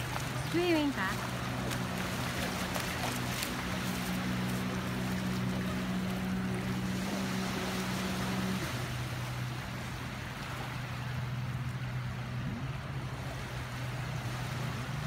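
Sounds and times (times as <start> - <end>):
boat engine humming: 0.0 - 15.0
small waves washing: 0.0 - 15.0.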